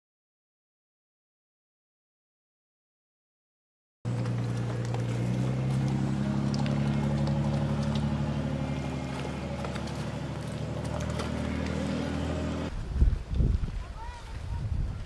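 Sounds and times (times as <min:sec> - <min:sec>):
boat engine humming: 0:04.1 - 0:12.7.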